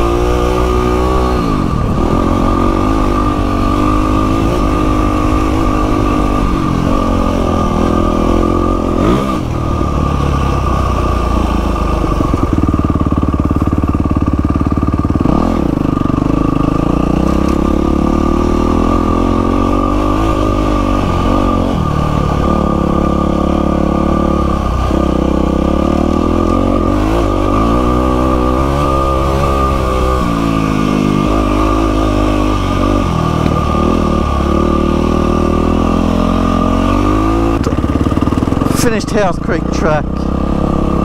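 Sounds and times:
dirt bike engine revving: 0:00.0 - 0:41.0.

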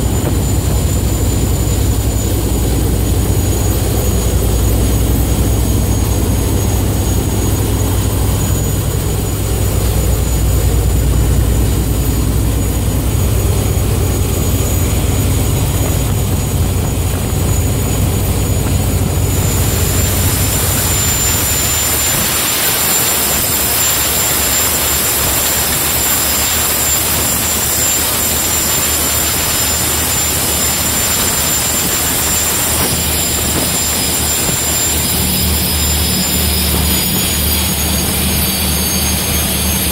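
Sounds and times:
boat engines droning: 0:00.0 - 0:39.9
wind and water spray rushing: 0:09.4 - 0:38.7.

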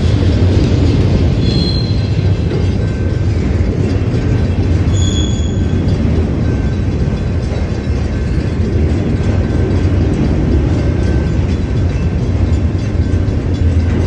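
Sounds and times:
freight train wheels rumbling on rail: 0:00.0 - 0:14.0
faint high squeal: 0:04.9 - 0:05.6.

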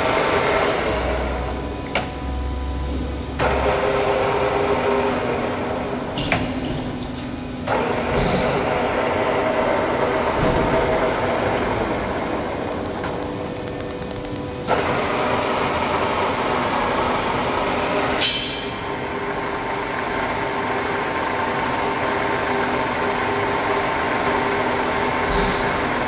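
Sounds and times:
machine clunk: 0:06.1 - 0:08.7
sharp metallic clank: 0:18.2 - 0:19.0.

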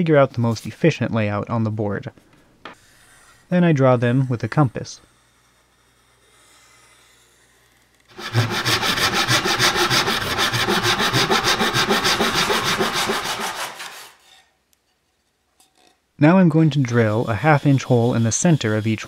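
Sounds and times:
handsaw cutting wood: 0:08.1 - 0:14.2, 0:16.8 - 0:19.0.

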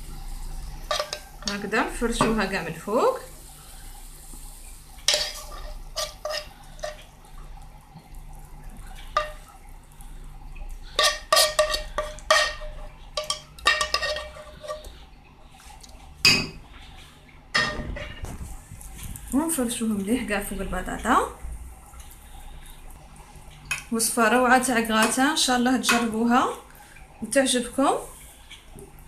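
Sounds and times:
metal spoon scraping a frying pan: 0:00.9 - 0:02.3, 0:05.1 - 0:07.1, 0:10.9 - 0:15.0.

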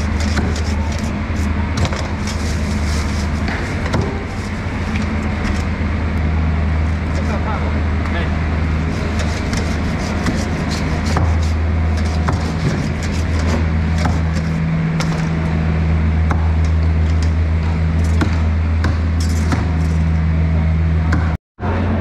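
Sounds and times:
motor droning: 0:00.0 - 0:22.0.

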